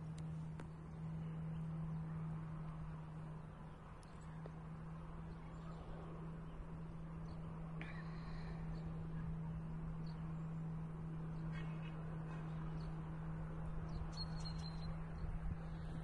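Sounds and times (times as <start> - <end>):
steady low hum: 0.0 - 16.0
faint bird chirps: 13.9 - 15.3.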